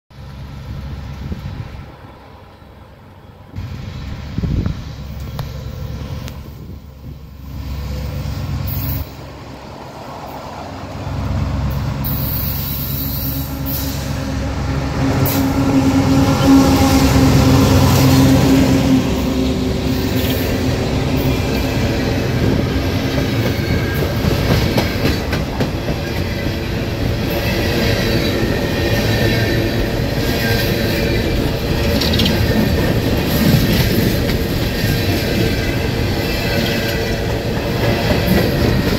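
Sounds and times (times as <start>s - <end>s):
diesel locomotive engines: 0.1s - 38.9s
faint high wheel squeal: 12.0s - 14.3s
wheels rolling on rails: 19.9s - 38.9s.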